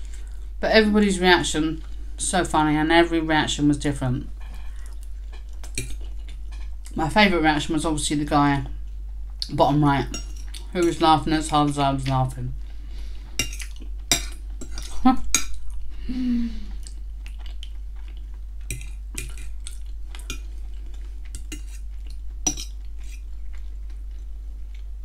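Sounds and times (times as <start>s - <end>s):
steady low hum: 0.0s - 25.0s
fork scraping ceramic plate: 21.3s - 21.9s, 22.5s - 23.3s.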